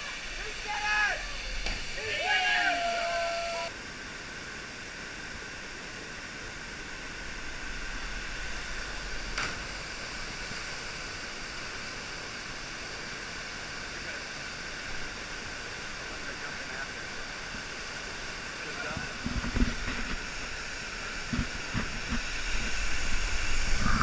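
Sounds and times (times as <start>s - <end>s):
waterfall rushing: 0.0s - 3.7s.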